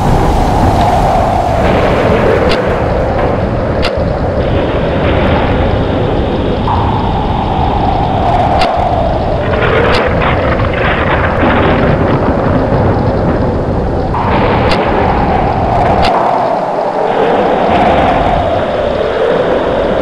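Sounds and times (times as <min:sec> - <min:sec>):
howling whistle: 0:00.0 - 0:11.3, 0:14.1 - 0:20.0
strong wind roaring: 0:00.0 - 0:20.0.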